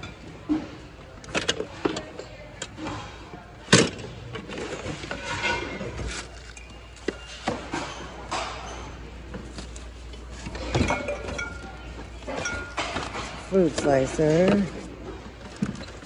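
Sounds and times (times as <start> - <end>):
metal and glass kitchenware clinking: 10.4 - 14.7.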